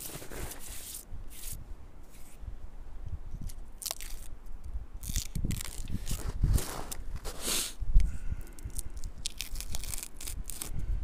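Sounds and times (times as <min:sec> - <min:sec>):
hand peeling bark: 0:03.4 - 0:10.9.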